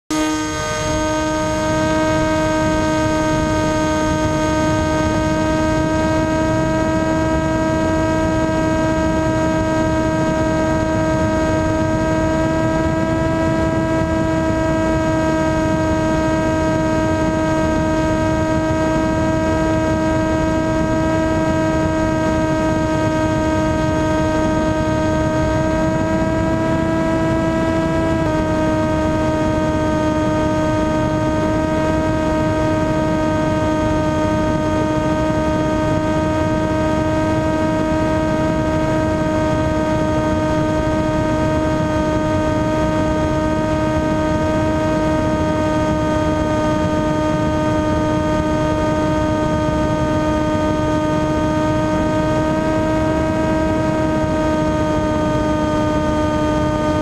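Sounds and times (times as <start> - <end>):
model airplane motor whine: 0.1 - 57.0
wind noise: 0.1 - 57.0.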